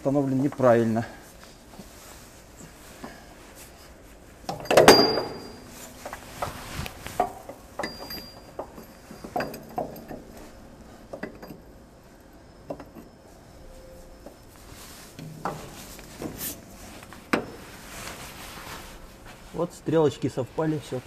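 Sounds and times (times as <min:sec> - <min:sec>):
metal clanks and clinks: 0:04.5 - 0:06.2, 0:07.2 - 0:11.8.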